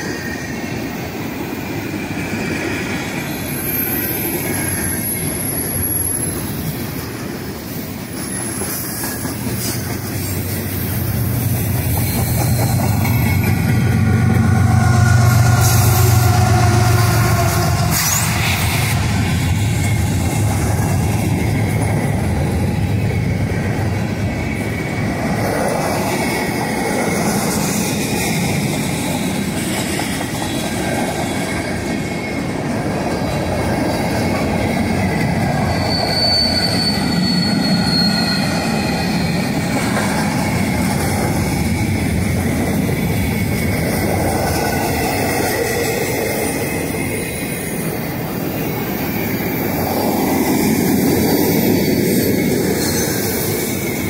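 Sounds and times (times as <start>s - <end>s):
train wheels rumbling on rails: 0.0s - 54.0s
wheel squeal: 7.7s - 13.9s, 14.5s - 22.6s, 34.7s - 43.8s, 47.8s - 54.0s.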